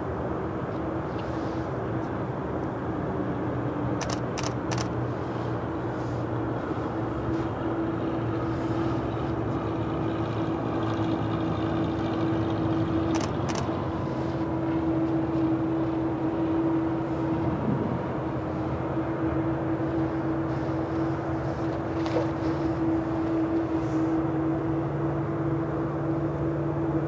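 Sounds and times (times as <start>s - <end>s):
mid-pitched hum: 3.5s - 27.0s
sharp clicks: 4.0s - 4.9s, 13.1s - 13.7s
jet engine drone: 4.0s - 27.0s.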